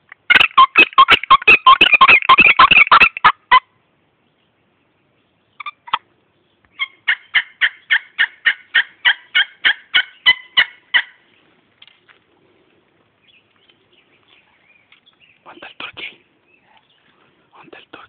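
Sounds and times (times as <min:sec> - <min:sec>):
turkey yelps: 0:00.3 - 0:03.7, 0:05.6 - 0:06.1, 0:06.8 - 0:11.2.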